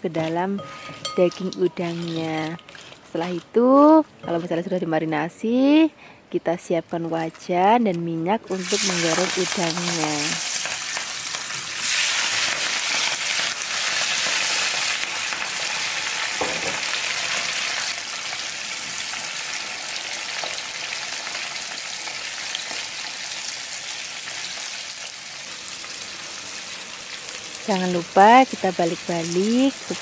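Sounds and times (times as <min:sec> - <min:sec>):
prawns sizzling in hot oil: 0:08.5 - 0:30.0.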